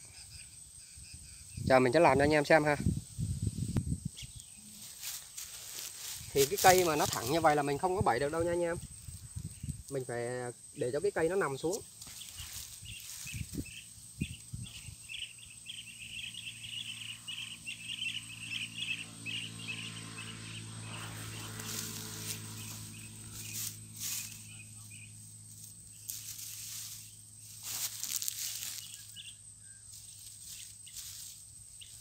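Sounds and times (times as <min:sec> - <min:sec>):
insects chirping in a trill: 0:00.0 - 0:32.0
sharp rustles: 0:04.7 - 0:07.6, 0:11.8 - 0:13.7, 0:21.0 - 0:24.5, 0:25.5 - 0:29.2, 0:29.9 - 0:32.0.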